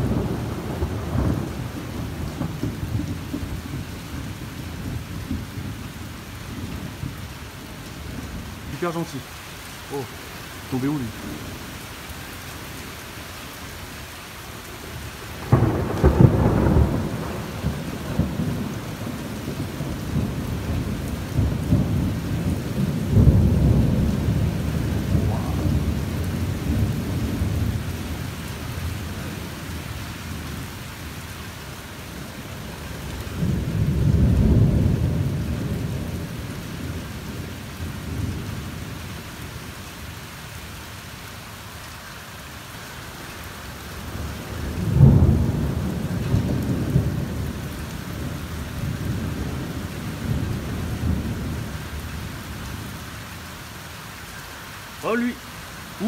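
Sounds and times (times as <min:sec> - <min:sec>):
thunder rumbling: 0:00.0 - 0:09.3, 0:15.2 - 0:30.6, 0:32.6 - 0:39.2, 0:44.1 - 0:52.9
steady rain: 0:00.0 - 0:56.0.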